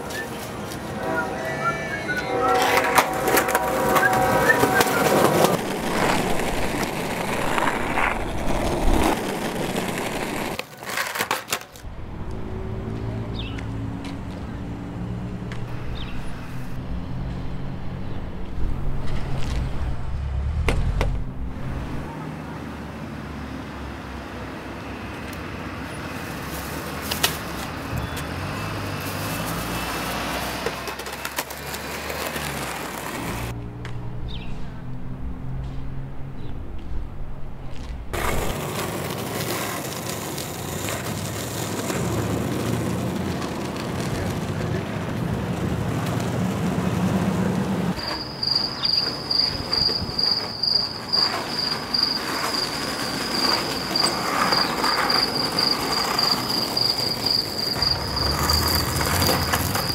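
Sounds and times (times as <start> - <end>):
passing traffic: 0.0 - 59.9
skateboard wheels rolling on concrete: 0.0 - 59.9
low hum: 11.8 - 22.1, 33.2 - 38.5.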